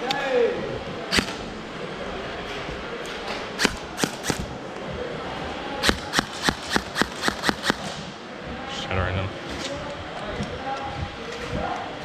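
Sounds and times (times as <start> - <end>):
gel blaster shots snapping: 1.1 - 1.4, 3.6 - 4.5, 5.8 - 7.8.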